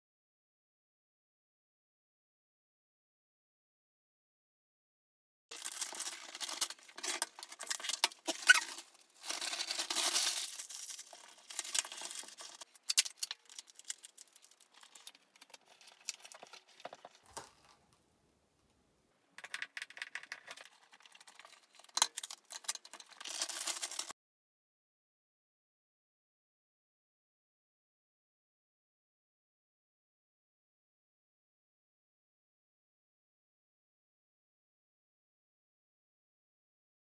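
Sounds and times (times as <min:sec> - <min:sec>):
rustling and crinkling: 0:05.5 - 0:18.0, 0:19.8 - 0:24.1.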